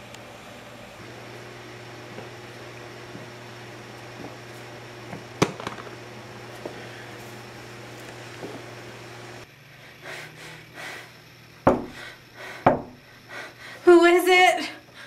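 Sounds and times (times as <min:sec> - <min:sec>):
knocking on wooden door: 0:11.7 - 0:12.0, 0:12.7 - 0:13.0.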